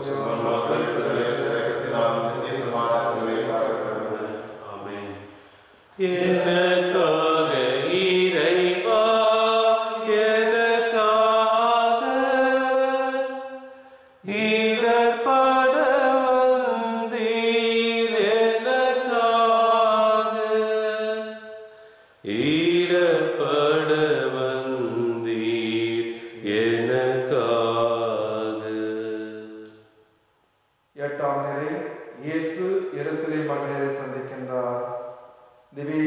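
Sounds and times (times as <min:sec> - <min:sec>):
person singing slow chant: 0:00.0 - 0:05.2, 0:05.9 - 0:29.8
breath: 0:05.3 - 0:06.0, 0:13.7 - 0:14.2, 0:21.6 - 0:22.2, 0:26.1 - 0:26.4.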